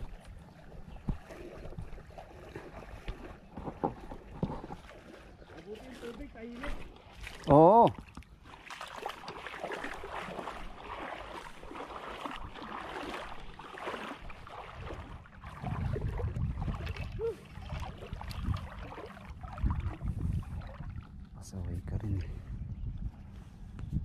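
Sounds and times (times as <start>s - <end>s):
seawater sloshing around legs: 0.0s - 21.4s
wind buffeting microphone: 14.2s - 24.0s.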